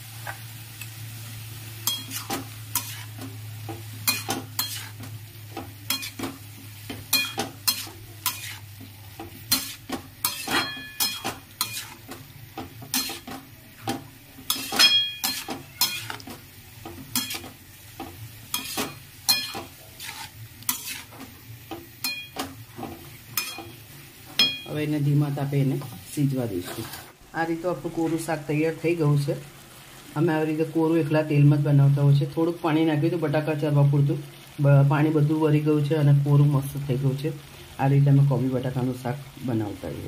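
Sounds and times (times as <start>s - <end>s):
low sizzle of frying: 0.0s - 40.0s
metal spatula scraping a pan: 1.8s - 24.7s, 26.6s - 27.2s.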